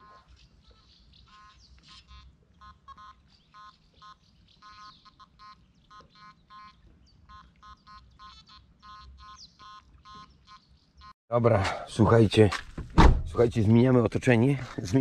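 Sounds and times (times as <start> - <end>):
faint bird chirps: 0.0 - 11.2.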